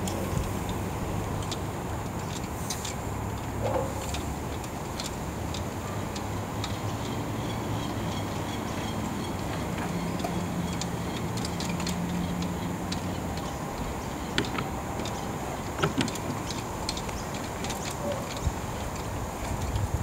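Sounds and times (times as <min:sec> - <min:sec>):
mast hardware clicking: 0:00.0 - 0:20.0.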